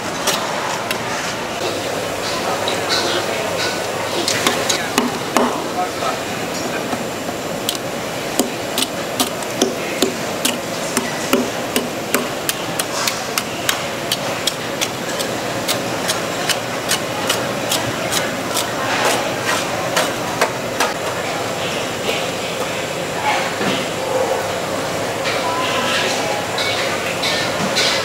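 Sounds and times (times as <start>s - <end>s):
utensil knocking rhythmically: 8.4s - 18.7s.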